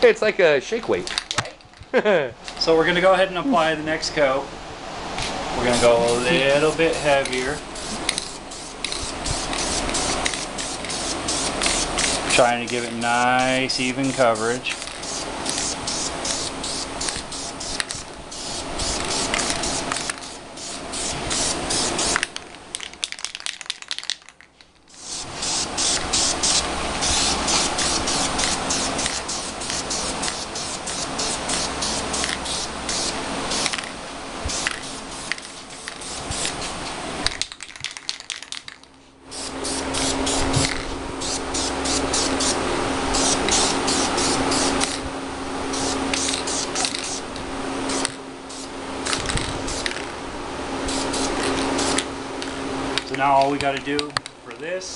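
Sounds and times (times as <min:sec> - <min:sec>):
aerosol spray can hissing: 0:05.7 - 0:22.4, 0:24.9 - 0:36.8, 0:39.3 - 0:45.0, 0:45.7 - 0:50.1, 0:50.8 - 0:52.1.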